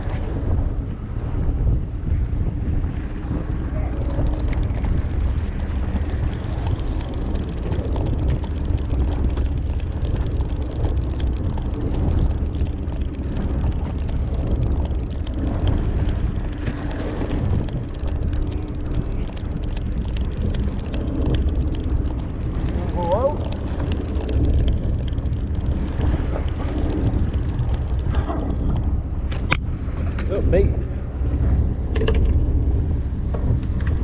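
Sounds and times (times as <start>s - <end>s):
boat engine droning: 0.0s - 34.0s
fishing reel clicks: 5.9s - 28.8s.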